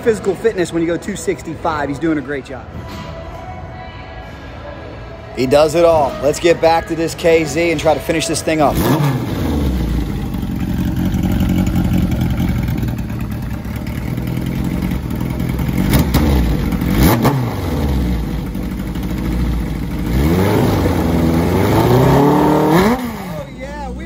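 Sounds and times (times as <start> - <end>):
motorcycle engine idling and revving: 7.6 - 24.0.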